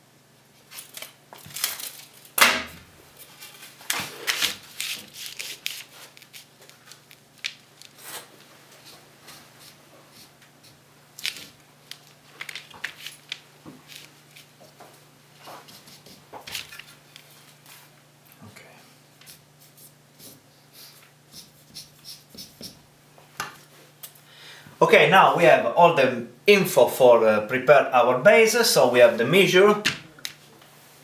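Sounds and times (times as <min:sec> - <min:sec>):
paper rustling: 0:03.2 - 0:09.0, 0:11.2 - 0:14.6.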